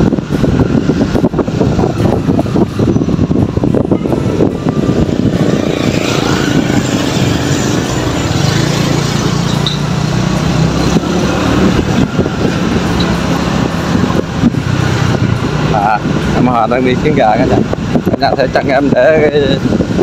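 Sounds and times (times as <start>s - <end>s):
wind rumbling on microphone: 0.0s - 20.0s.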